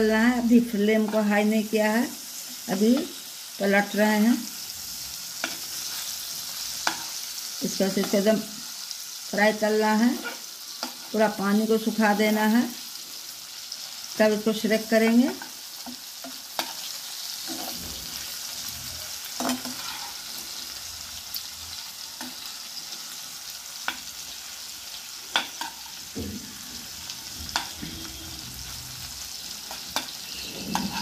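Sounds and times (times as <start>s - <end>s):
chicken sizzling in hot oil: 0.0s - 31.0s
metal spatula scraping pan: 16.2s - 20.6s, 25.3s - 31.0s.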